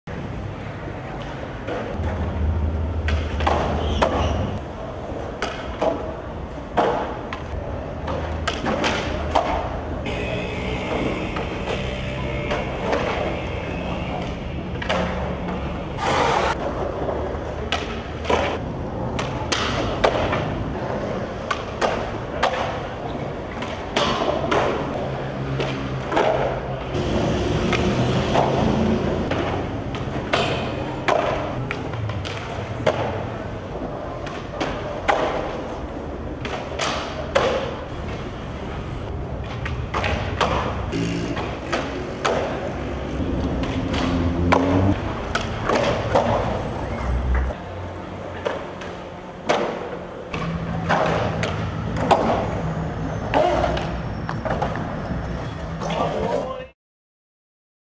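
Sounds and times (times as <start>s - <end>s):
skateboards rolling on concrete: 0.1s - 56.7s
skateboard pops and landing slaps: 5.4s - 6.1s, 6.7s - 9.8s, 17.7s - 20.5s, 34.2s - 35.7s.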